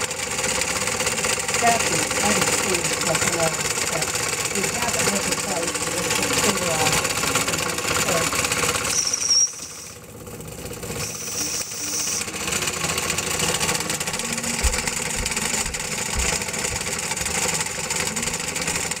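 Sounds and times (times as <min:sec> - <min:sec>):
toy steam engine hissing and clattering: 0:00.0 - 0:14.8
brief high tone: 0:11.0 - 0:12.4.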